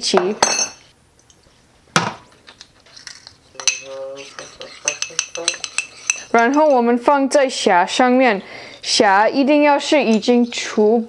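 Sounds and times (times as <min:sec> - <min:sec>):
spoon clinking ceramic ramekin: 0:03.0 - 0:06.9.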